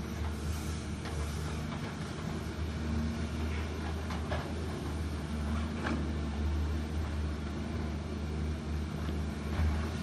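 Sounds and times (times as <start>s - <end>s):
excavator diesel engine droning: 0.0s - 10.0s.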